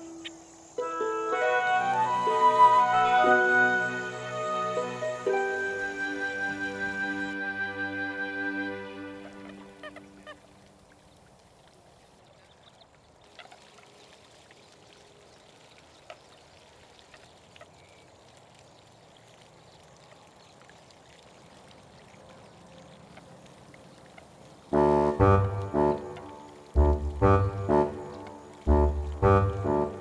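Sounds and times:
water trickling: 0.0 - 30.0
small splashes and drips: 9.8 - 30.0.

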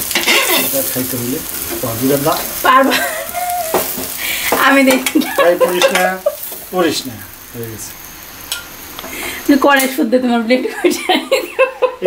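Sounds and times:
hot oil sizzling in a wok: 0.0 - 12.0.

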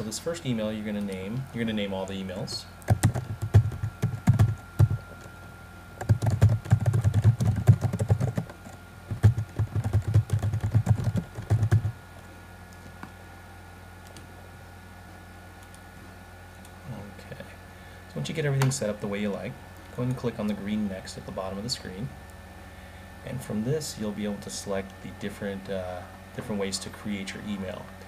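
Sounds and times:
typing on computer keyboard: 2.9 - 5.0, 6.0 - 11.9.

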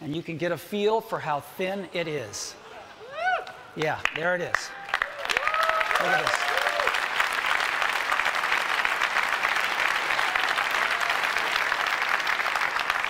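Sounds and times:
large audience applauding: 3.0 - 13.0.

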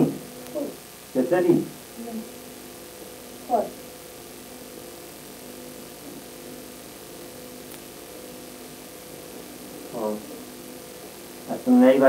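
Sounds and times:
electrical mains hum: 0.0 - 12.0
faint hiss: 0.0 - 12.0.

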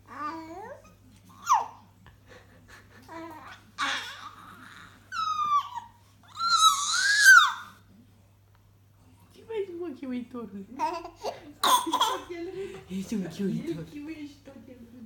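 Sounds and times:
baby babbling: 0.1 - 1.8, 3.1 - 7.7
baby squealing: 3.8 - 7.7.

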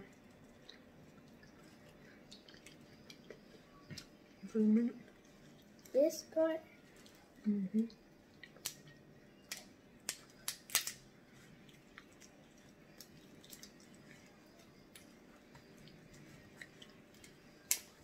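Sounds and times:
shells cracking: 8.5 - 11.0
small shell clicks: 8.6 - 11.0.

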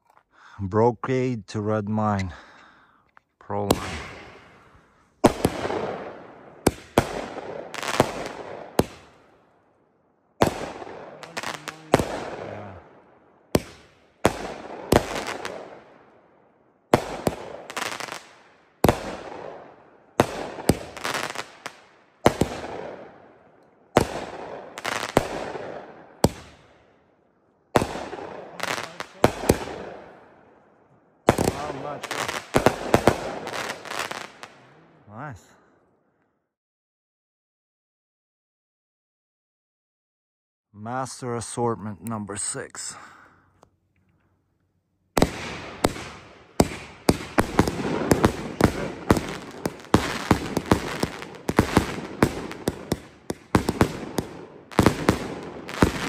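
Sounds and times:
firework bangs: 3.6 - 9.4, 10.4 - 16.0, 16.9 - 23.2, 23.9 - 26.8, 27.7 - 30.4, 31.2 - 34.7, 45.2 - 56.0
firework crackle: 10.4 - 12.8, 13.5 - 15.8, 16.9 - 19.5, 20.2 - 23.0, 27.8 - 30.2, 31.2 - 34.7, 45.2 - 56.0.

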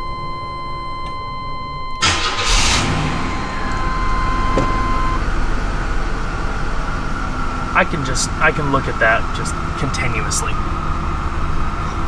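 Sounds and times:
car engine starting and idling: 1.8 - 12.0.

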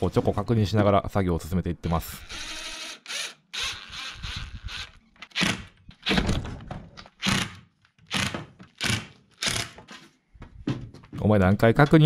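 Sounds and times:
impact driver driving screws: 2.2 - 6.2, 7.1 - 9.9.

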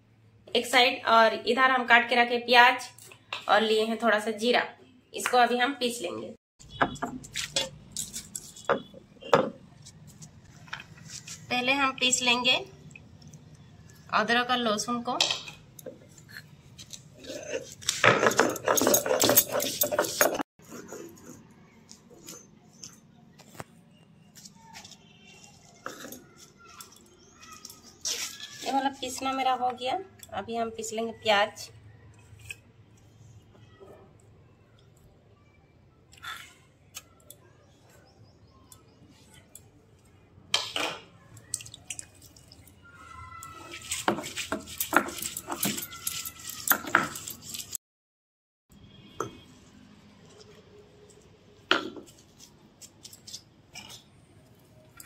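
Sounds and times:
bangles clinking: 17.3 - 20.5, 43.8 - 47.8.

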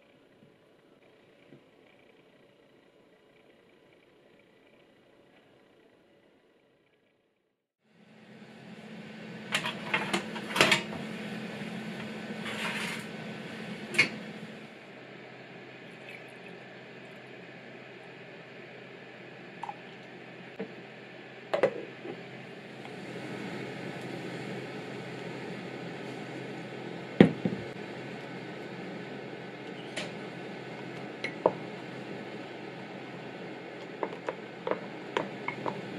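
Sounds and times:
kitchen oven humming: 7.8 - 35.9
scraping rustle: 12.4 - 13.1.

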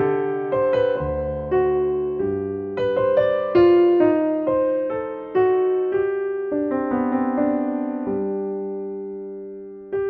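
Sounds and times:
slow piano music: 0.0 - 10.0.

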